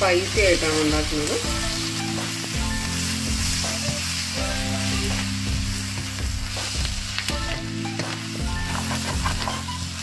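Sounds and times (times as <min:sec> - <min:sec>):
onions sizzling in a frying pan: 0:00.0 - 0:10.0
spatula scraping a pan: 0:08.5 - 0:09.9.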